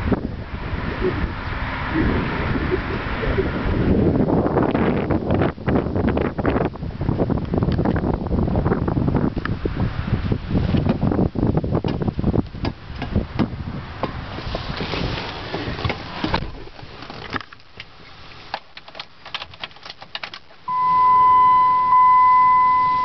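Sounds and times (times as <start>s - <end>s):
knocks and rustling in car cab: 10.6s - 11.2s, 11.8s - 17.9s
dashboard warning chime: 20.7s - 23.0s.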